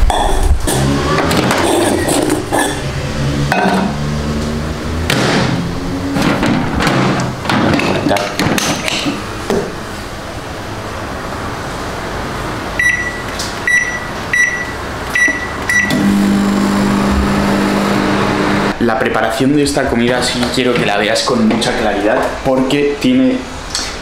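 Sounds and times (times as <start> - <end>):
dishes clattering: 3.5 - 4.0, 6.2 - 9.7
microwave humming: 12.7 - 18.8
microwave beeps: 12.8 - 16.8.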